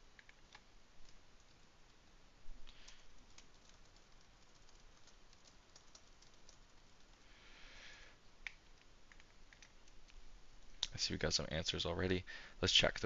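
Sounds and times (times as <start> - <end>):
keyboard and mouse clicks: 0.1 - 1.7, 8.4 - 10.2.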